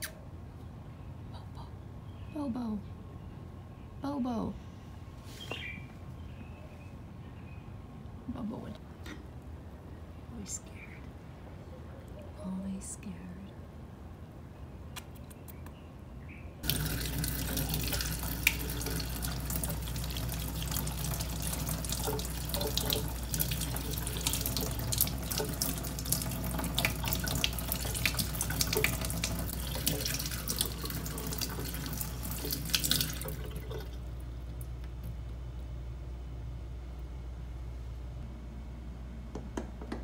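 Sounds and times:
tap water splashing into sink: 16.6 - 34.0.

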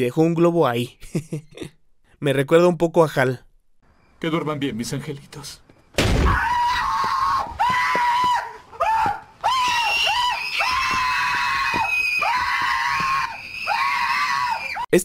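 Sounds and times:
people screaming in fright: 6.2 - 14.9.

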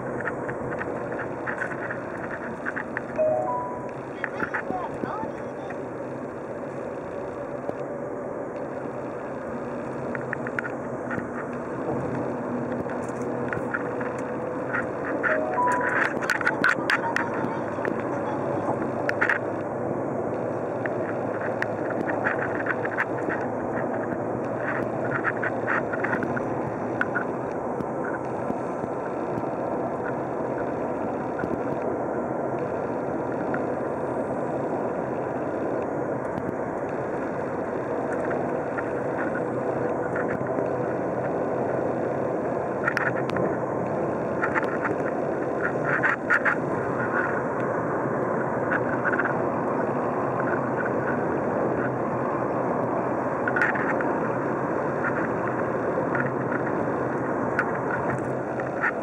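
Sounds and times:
road and tyre noise: 0.0 - 59.0.

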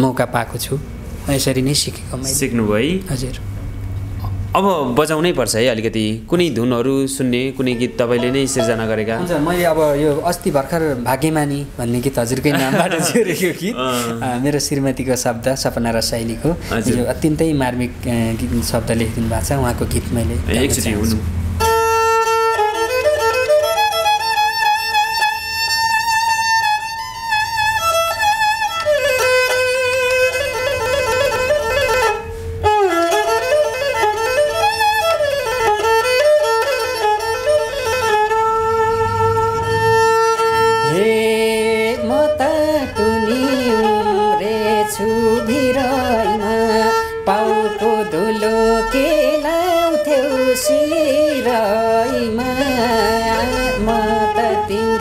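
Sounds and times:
bowed string folk melody: 5.5 - 55.0
man singing: 40.8 - 55.0.

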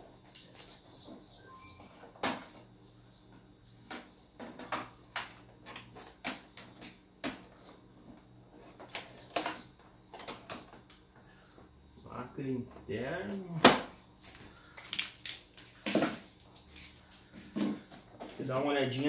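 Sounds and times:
plastic film crackling as peeled: 14.5 - 15.8.

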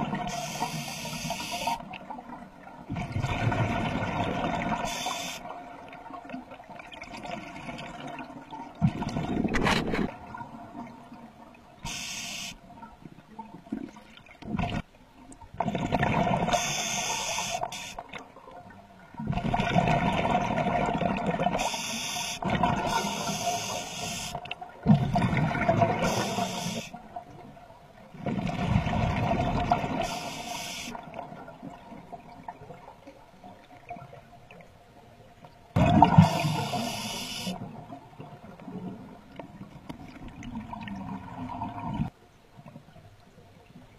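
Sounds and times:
diver inhaling through regulator: 0.3 - 1.8, 11.8 - 12.6, 16.5 - 18.0, 21.6 - 24.4, 26.0 - 27.0, 30.0 - 31.0, 36.1 - 37.6
gurgle of exhaled bubbles: 2.9 - 4.9, 6.9 - 11.1, 15.6 - 16.7, 19.2 - 21.6, 24.8 - 26.4, 28.2 - 30.1, 35.8 - 36.9, 40.0 - 42.1.

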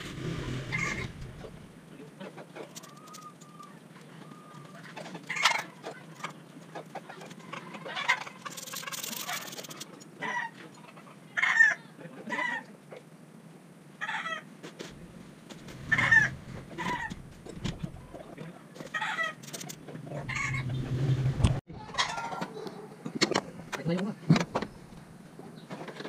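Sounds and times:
chickens clucking: 0.7 - 12.6, 18.0 - 20.8.

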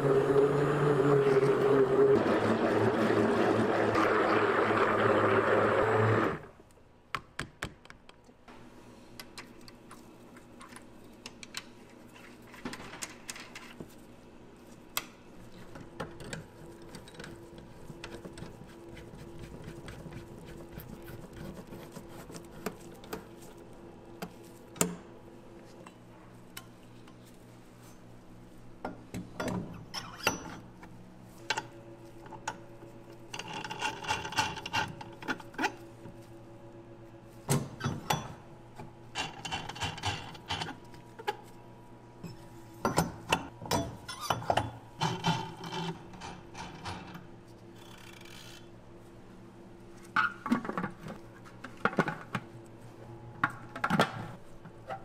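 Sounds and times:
stick blender whirring: 0.0 - 6.5.

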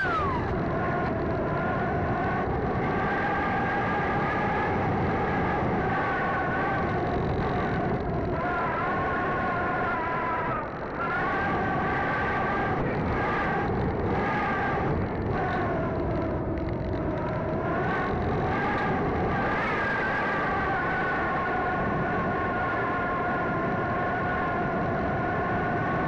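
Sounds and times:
electric motor and propeller whining: 0.0 - 7.5
rushing wind noise: 0.0 - 26.0.

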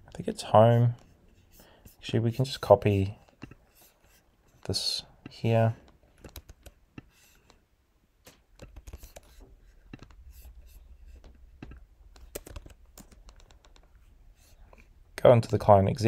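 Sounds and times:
mouse and keyboard clicks: 6.2 - 7.6, 11.6 - 13.9.

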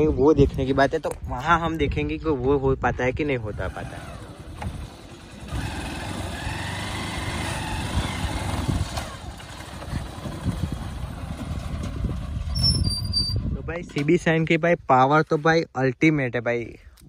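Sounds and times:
motorcycle engine running at low revs: 3.4 - 13.2.

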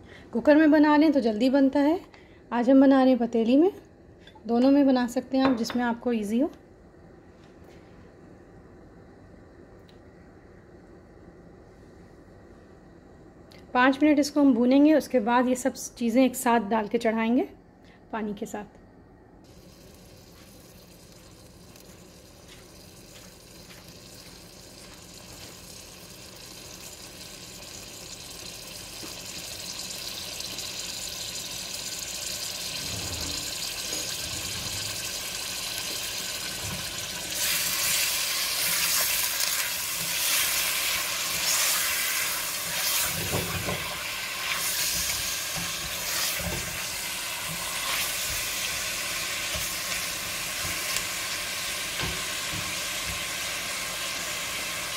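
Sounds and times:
meat sizzling in hot oil: 19.5 - 54.9
spatula stirring meat: 37.4 - 46.9.

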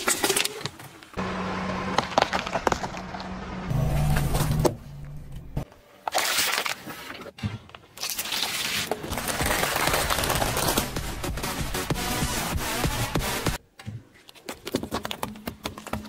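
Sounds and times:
plastic bottle crushed under tyre: 8.9 - 11.0.

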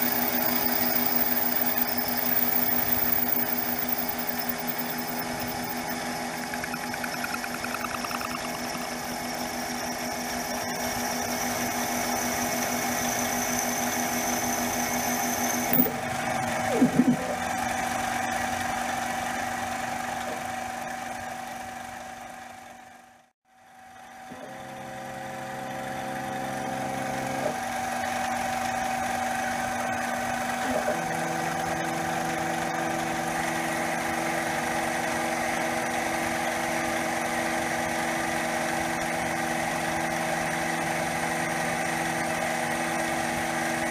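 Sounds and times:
end mill cutting aluminum: 0.0 - 7.2
stepper motor tones: 0.0 - 17.7
spindle motor hum: 0.0 - 18.0.

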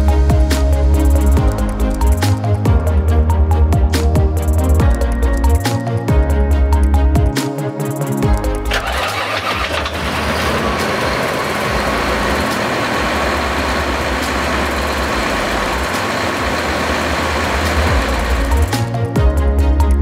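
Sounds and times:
diesel engine running: 8.6 - 19.0.

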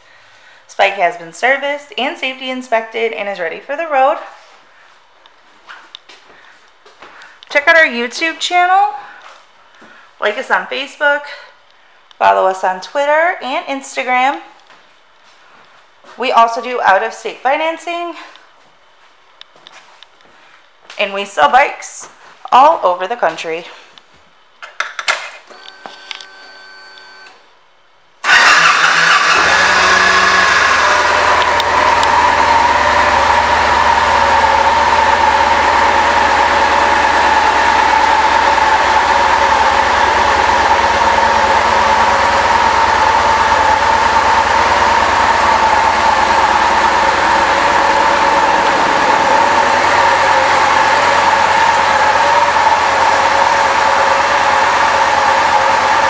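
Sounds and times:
motorcycle engine starting and idling: 28.2 - 56.0.

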